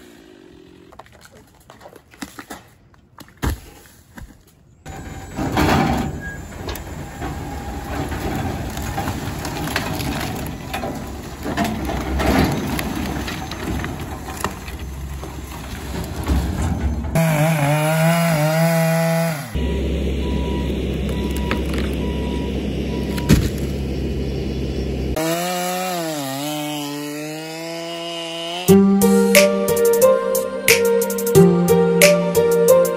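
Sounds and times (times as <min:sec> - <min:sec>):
engine rising and falling in pitch: 0:17.2 - 0:29.6.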